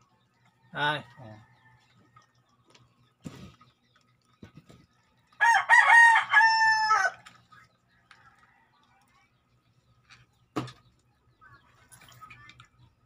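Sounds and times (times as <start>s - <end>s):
rooster crowing: 5.4s - 7.2s.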